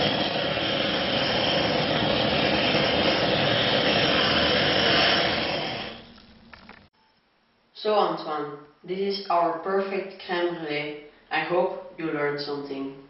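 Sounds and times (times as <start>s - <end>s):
blowtorch flame hissing: 0.0s - 6.9s.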